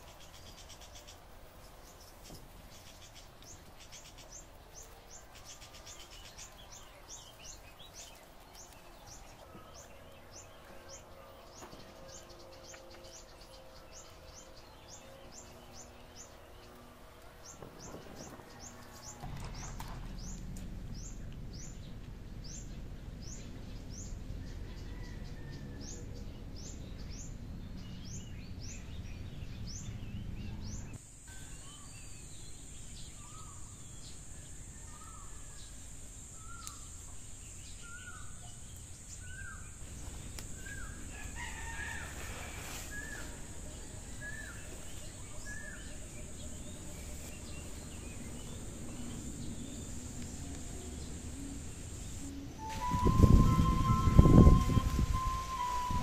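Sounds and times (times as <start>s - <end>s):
bird chirping: 0.0s - 41.9s, 43.0s - 56.0s
outdoor background noise: 0.0s - 56.0s
high-pitched hiss: 31.0s - 56.0s.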